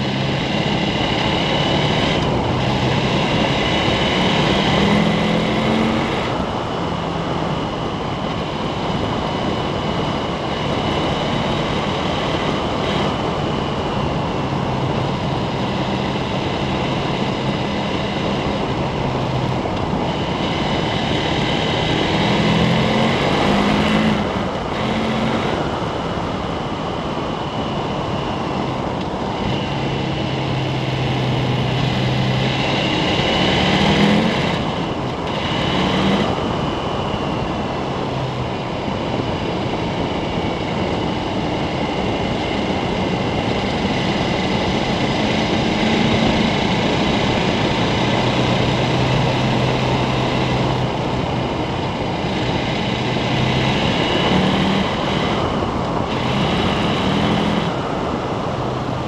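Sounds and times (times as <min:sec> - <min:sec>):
motorcycle engine running: 0:00.0 - 0:59.0
wind noise: 0:00.0 - 0:59.0.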